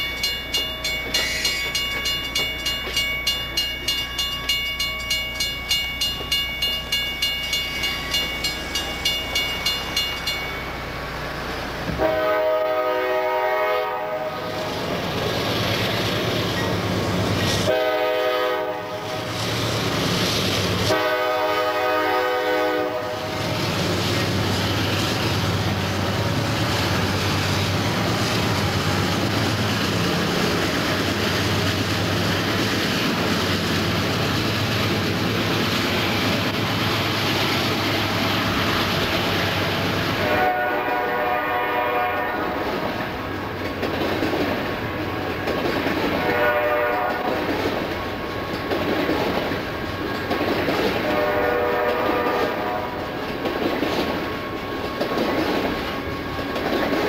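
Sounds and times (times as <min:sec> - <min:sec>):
crossing bell ringing: 0:00.0 - 0:11.4
locomotive engine rumble: 0:00.0 - 0:57.0
locomotive horn blasts: 0:11.9 - 0:14.6, 0:17.6 - 0:19.3, 0:20.8 - 0:23.5, 0:40.2 - 0:42.9, 0:46.1 - 0:47.4, 0:51.0 - 0:53.0.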